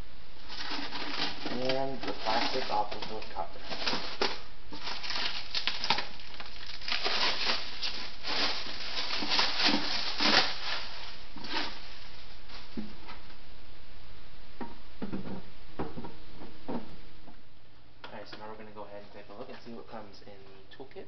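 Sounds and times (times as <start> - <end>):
plastic film crinkling and tearing: 0.4 - 12.9.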